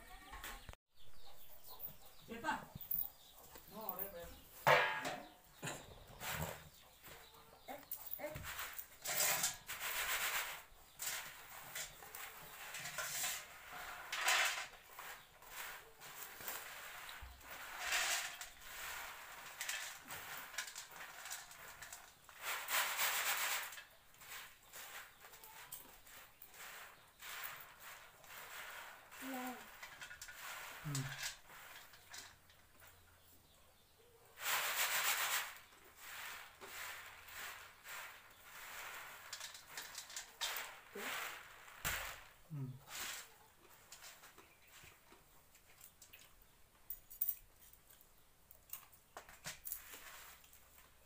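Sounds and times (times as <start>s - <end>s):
popcorn rattling in bamboo basket: 7.7s - 33.1s, 34.4s - 46.3s, 48.6s - 51.0s.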